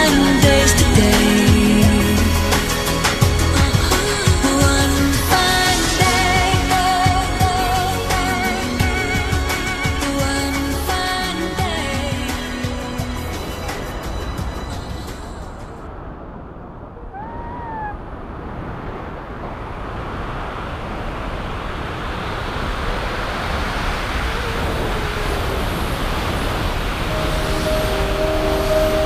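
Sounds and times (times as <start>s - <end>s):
steady music tones: 0.0s - 15.9s, 26.9s - 29.0s
wind rushing over microphone: 8.5s - 29.0s
gliding tone: 23.6s - 29.0s.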